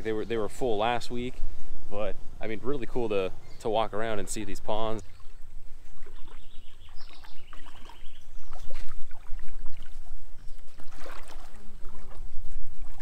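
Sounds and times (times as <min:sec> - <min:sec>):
water sloshing and splashing: 0:04.0 - 0:13.0.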